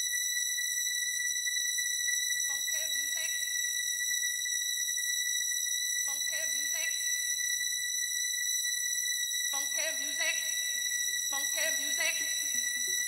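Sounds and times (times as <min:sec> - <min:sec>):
high-pitched held tone: 0:11.4 - 0:13.0.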